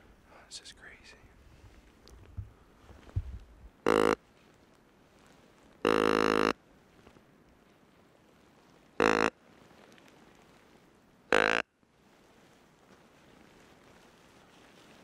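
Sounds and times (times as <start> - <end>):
deer grunt call: 3.8 - 4.2, 5.8 - 6.5, 9.0 - 9.3.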